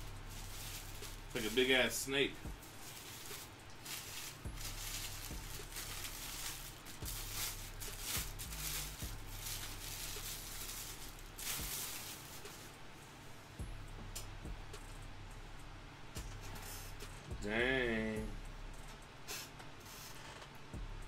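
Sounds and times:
plastic wrapping crinkling: 0:00.0 - 0:12.9.

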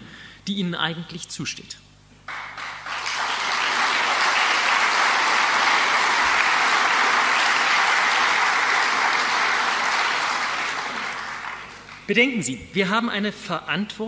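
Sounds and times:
audience applauding: 0:02.3 - 0:12.1.

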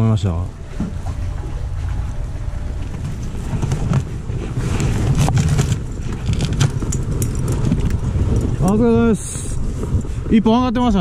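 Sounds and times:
wind buffeting microphone: 0:00.0 - 0:11.0
small clicks and rustles: 0:02.8 - 0:08.9.

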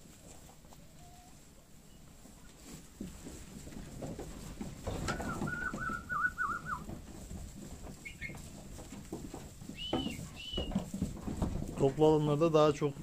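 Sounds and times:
sheep shuffling: 0:00.0 - 0:13.0
birds calling: 0:04.9 - 0:06.9, 0:08.0 - 0:08.4.

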